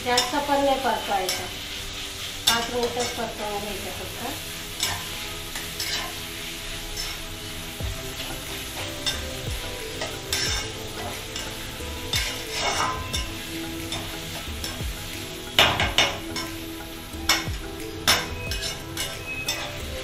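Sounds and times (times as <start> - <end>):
vegetables sizzling: 0.0 - 20.0
spatula scraping metal pan: 4.4 - 20.0.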